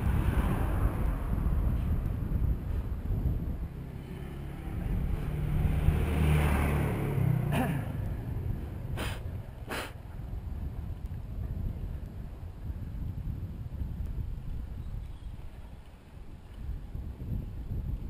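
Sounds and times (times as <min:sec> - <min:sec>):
motor vehicle passing: 0:00.0 - 0:10.3
wind on microphone: 0:00.0 - 0:18.0.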